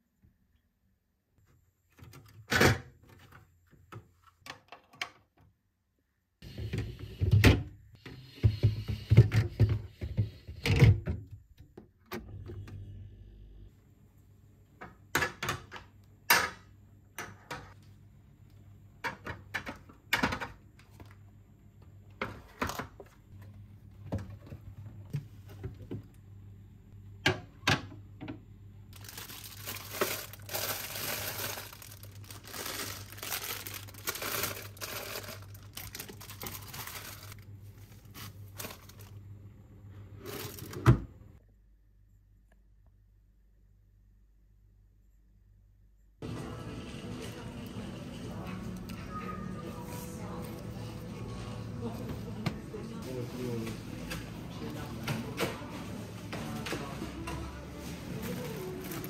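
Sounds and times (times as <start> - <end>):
plastic packaging rustling: 28.9 - 39.2, 40.2 - 40.8, 55.6 - 59.0.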